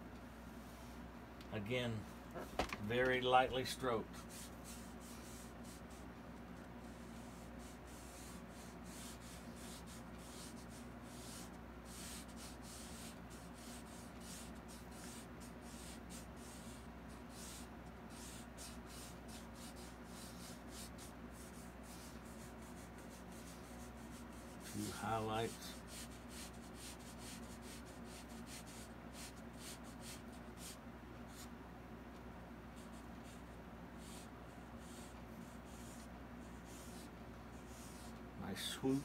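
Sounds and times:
steady low hum: 0.0s - 39.0s
paintbrush scratching on canvas: 6.8s - 31.5s, 34.0s - 39.0s.

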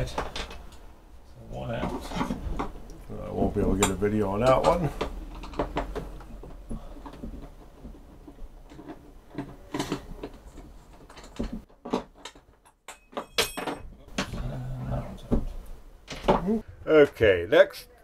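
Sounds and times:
rubbing and handling noise: 0.0s - 13.2s
metallic ring: 12.9s - 13.9s.

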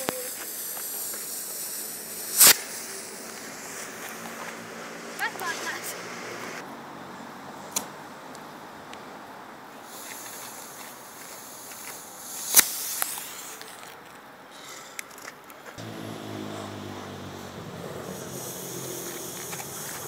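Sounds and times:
rocket motor hissing: 0.0s - 6.6s, 9.8s - 13.8s, 15.8s - 20.0s.

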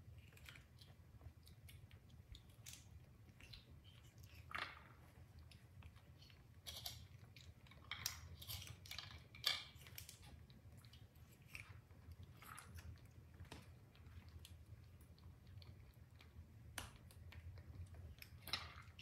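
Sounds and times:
faint low hum: 0.0s - 19.0s
monkeys chewing fruit: 9.8s - 13.6s.

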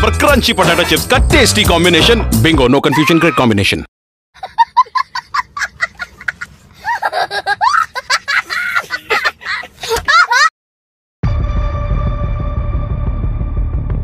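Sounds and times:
child laughing: 4.4s - 10.5s.

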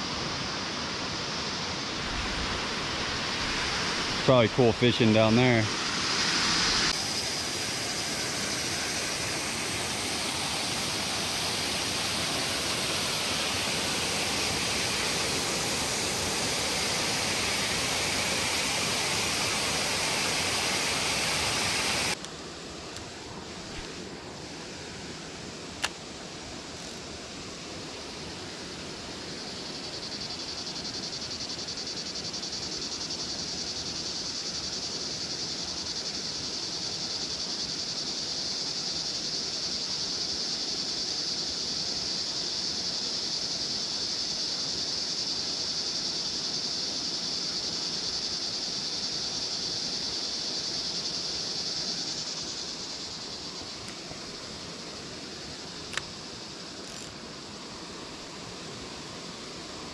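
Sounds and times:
insect buzzing: 0.0s - 59.9s
faint outdoor rustle: 22.1s - 28.8s, 46.6s - 59.9s.

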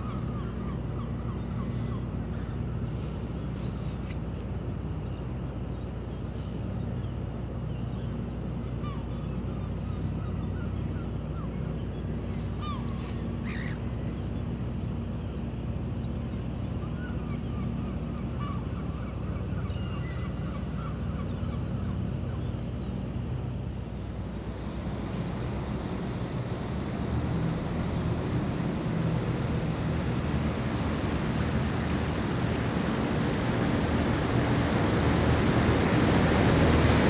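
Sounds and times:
low machinery drone: 0.0s - 37.0s.

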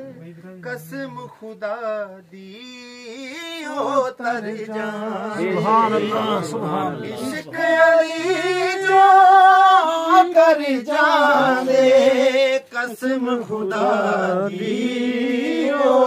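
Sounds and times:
man singing unaccompanied: 0.0s - 16.0s.

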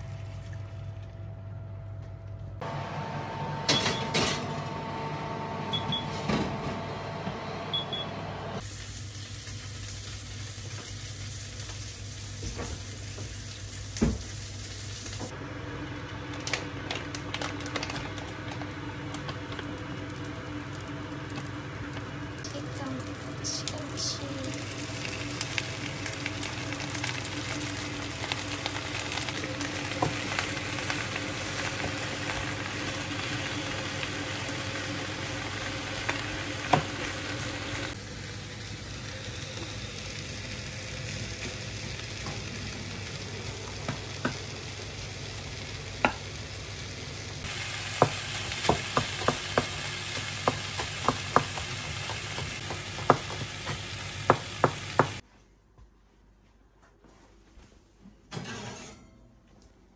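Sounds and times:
food sizzling in a pan: 8.6s - 15.4s, 19.5s - 55.2s.

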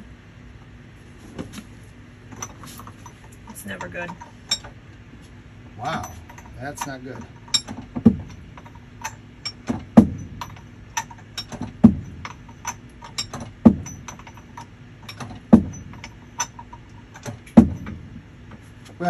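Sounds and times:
heavy metal clunks: 5.8s - 18.6s.

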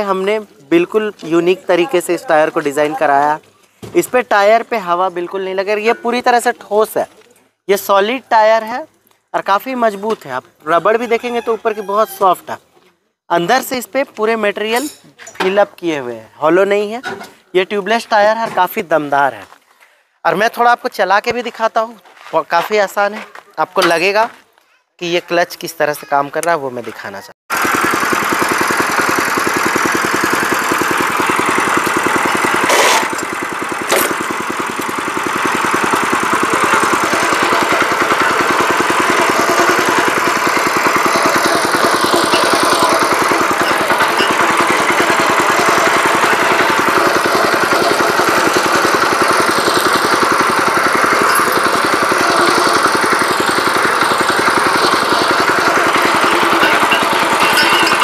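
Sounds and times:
small engine running steadily: 27.5s - 58.0s.

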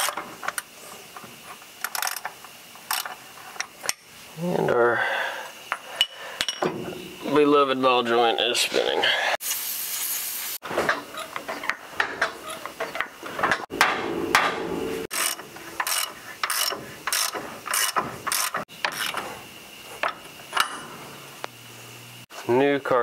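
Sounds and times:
hand ratchet clicking: 1.8s - 4.0s, 15.1s - 19.2s
aerosol spray can hiss: 9.4s - 10.6s.

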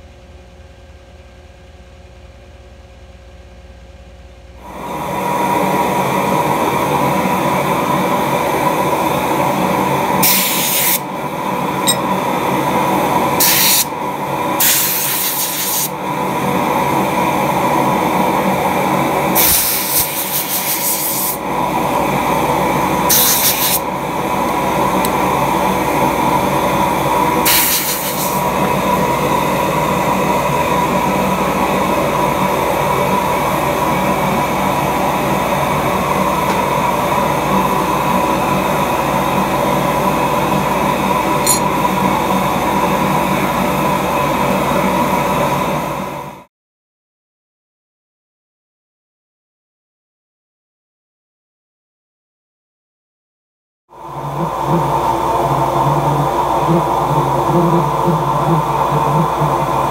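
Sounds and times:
loud steady running noise: 0.0s - 46.5s, 53.9s - 59.9s
spray hissing bursts: 23.1s - 23.8s, 27.4s - 28.4s.

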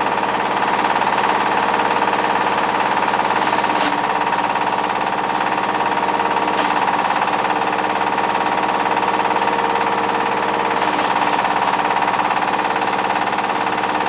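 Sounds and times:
diesel engine running: 0.0s - 14.0s
hammermill grinding bark: 0.0s - 14.0s.

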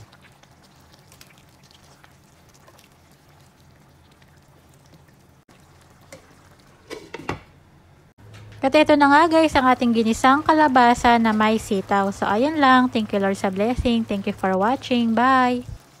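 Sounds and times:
stew bubbling and popping: 0.0s - 7.1s.

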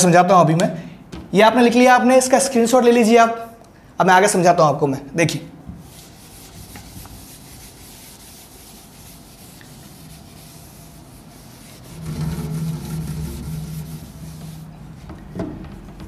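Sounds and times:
duster wiping whiteboard: 5.7s - 15.1s.

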